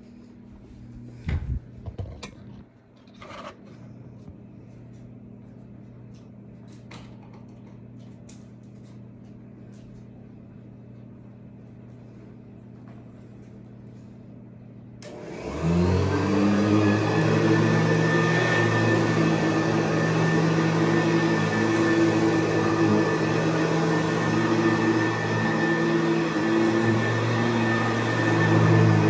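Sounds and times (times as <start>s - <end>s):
vacuum cleaner motor: 15.0s - 29.0s.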